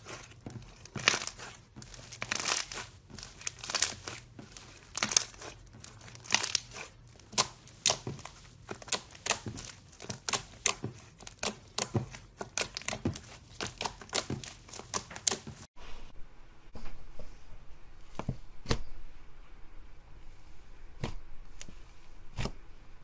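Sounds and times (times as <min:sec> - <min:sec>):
slime crackling and popping: 0:00.0 - 0:15.7.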